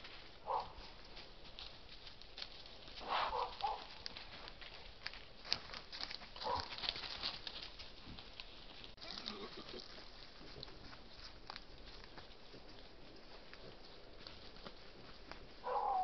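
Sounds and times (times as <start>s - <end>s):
undergrowth rustling: 0.0s - 16.0s
wild boar grunting: 9.0s - 10.0s.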